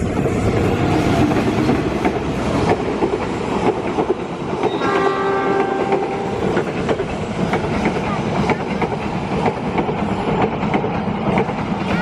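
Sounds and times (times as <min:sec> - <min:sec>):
train wheels rumbling and clicking: 0:00.0 - 0:12.0
locomotive horn blast: 0:04.7 - 0:06.4.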